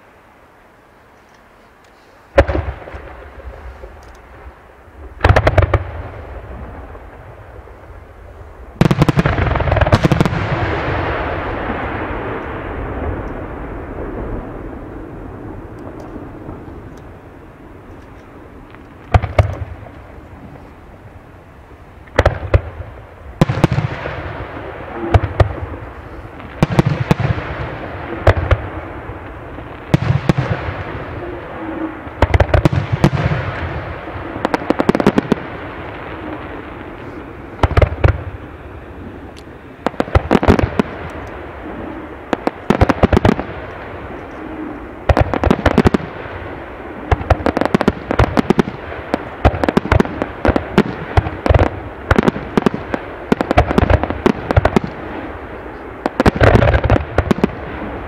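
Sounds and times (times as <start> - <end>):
firework shells booming: 2.3 - 4.0, 5.0 - 7.4, 8.8 - 17.2, 18.6 - 20.6, 22.1 - 58.0
crackling pops: 17.9 - 20.8.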